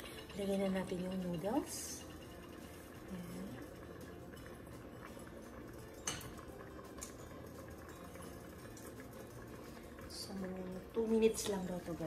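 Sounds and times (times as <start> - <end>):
broth simmering: 0.0 - 12.0.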